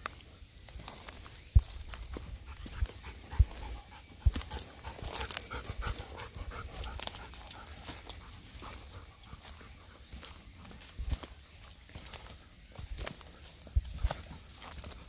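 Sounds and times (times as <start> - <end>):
dog panting: 2.4 - 10.9.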